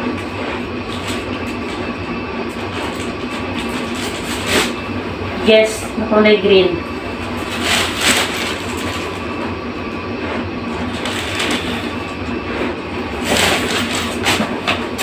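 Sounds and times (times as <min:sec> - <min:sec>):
low hum: 0:00.0 - 0:15.0
plastic packaging rustling: 0:07.0 - 0:09.2, 0:10.8 - 0:12.0, 0:13.1 - 0:15.0.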